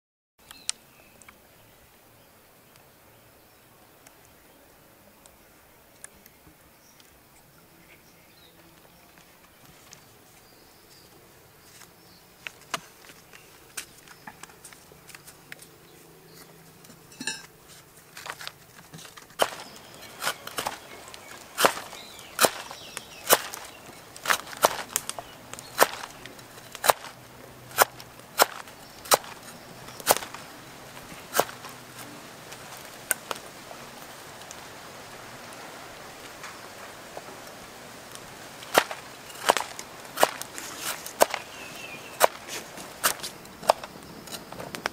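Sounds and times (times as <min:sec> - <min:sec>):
knife chopping on wooden block: 0:21.6 - 0:29.4, 0:30.0 - 0:30.4.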